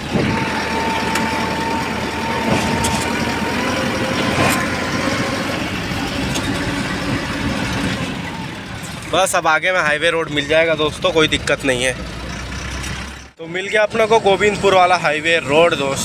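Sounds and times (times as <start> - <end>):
steady whine: 0.0 - 9.1
truck engine running: 0.0 - 16.0.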